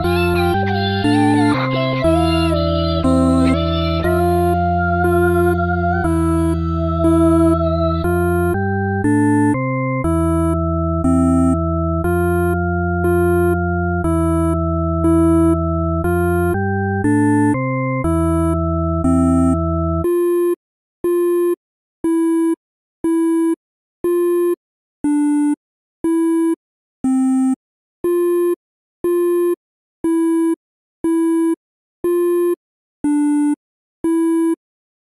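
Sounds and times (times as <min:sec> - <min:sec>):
buzzy electronic beep: 0:00.0 - 0:13.5
synthesizer chord with bass: 0:00.0 - 0:20.0.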